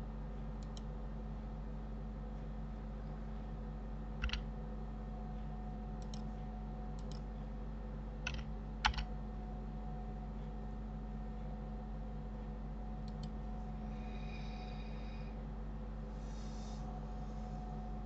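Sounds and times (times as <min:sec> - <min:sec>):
low electrical hum: 0:00.0 - 0:18.0
mouse buttons and keys clicking: 0:04.2 - 0:04.4, 0:08.2 - 0:09.1.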